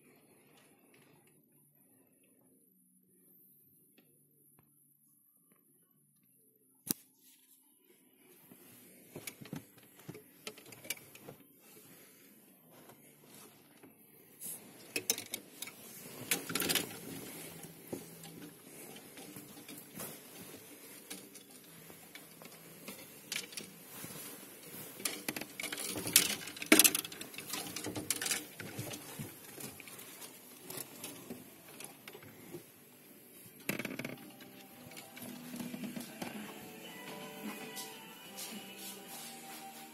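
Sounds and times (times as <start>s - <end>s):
clothes and bags rustling: 8.2s - 39.9s.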